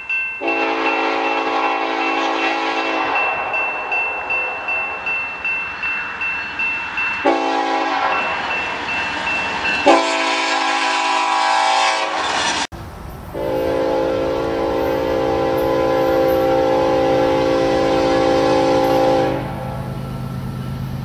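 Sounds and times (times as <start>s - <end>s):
locomotive air horn: 0.4s - 3.5s, 7.2s - 8.4s, 9.8s - 12.7s, 13.4s - 19.9s
bell ringing rapidly: 3.2s - 7.3s.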